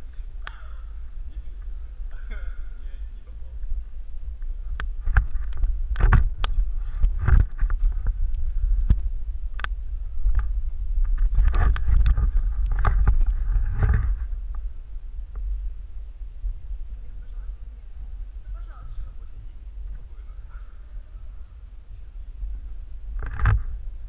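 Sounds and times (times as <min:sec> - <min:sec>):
rustling: 0:00.0 - 0:24.0
camera handling rumble: 0:03.5 - 0:15.6, 0:23.1 - 0:23.9.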